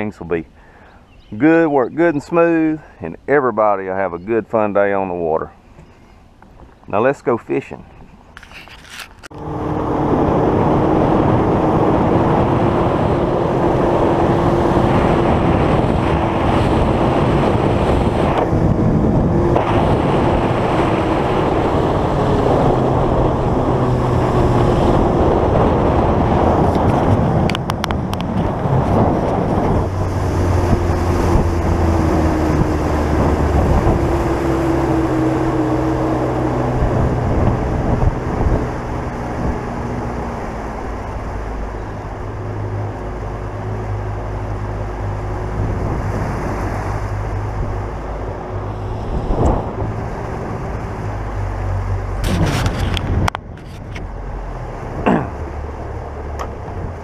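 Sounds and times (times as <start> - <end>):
wind buffeting microphone: 7.9 - 57.0
outboard motor running: 9.2 - 57.0.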